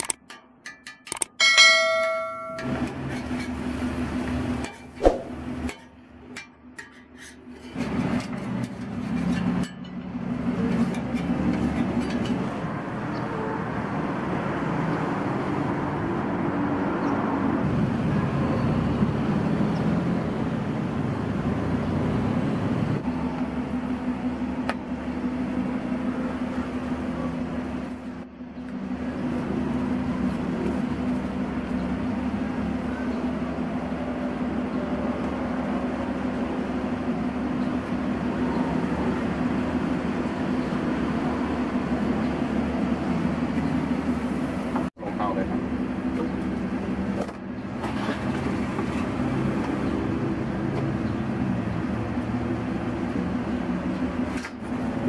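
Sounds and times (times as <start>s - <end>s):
street background noise: 0.0s - 55.0s
metal spatula scraping griddle: 2.6s - 3.7s, 6.8s - 9.8s.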